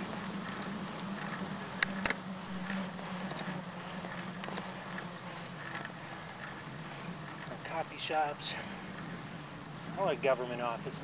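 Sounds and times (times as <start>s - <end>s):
bicycle tyre and wind noise: 0.0s - 11.0s
sharp clicks or rattles: 1.0s - 6.6s.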